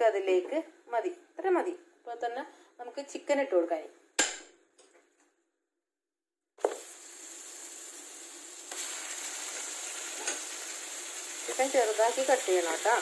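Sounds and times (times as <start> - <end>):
chicken sizzling in oil: 6.6 - 13.0.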